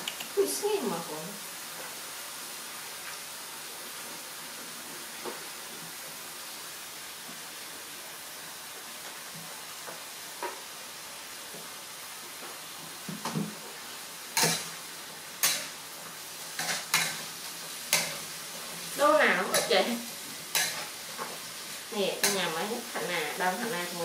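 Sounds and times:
vegetables sizzling in a wok: 0.0s - 24.0s
metal spatula scraping a wok: 14.4s - 14.8s, 15.4s - 15.8s, 16.4s - 23.4s.

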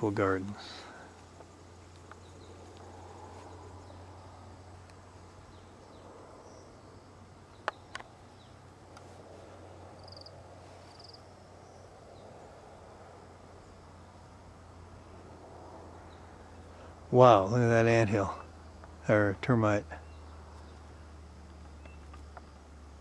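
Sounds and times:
low hum and hiss: 0.0s - 23.0s
sharp clicks: 7.6s - 8.2s.

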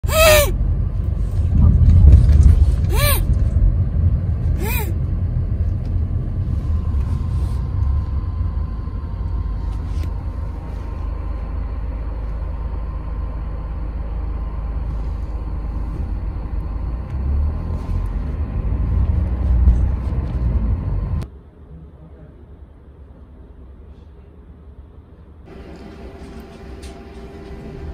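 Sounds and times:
car road rumble inside cabin: 0.0s - 21.3s.

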